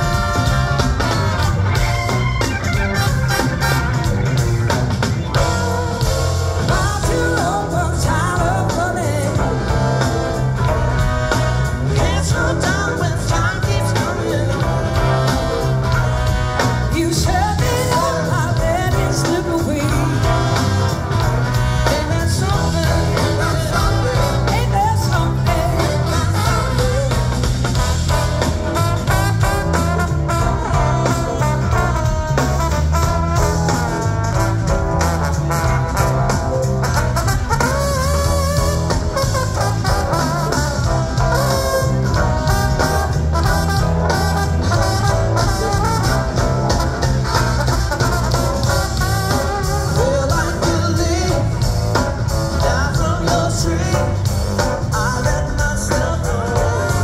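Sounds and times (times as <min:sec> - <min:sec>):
live blues rock band: 0:00.0 - 0:57.0
person singing: 0:06.6 - 0:15.7, 0:16.9 - 0:21.0, 0:21.8 - 0:27.8, 0:49.3 - 0:57.0.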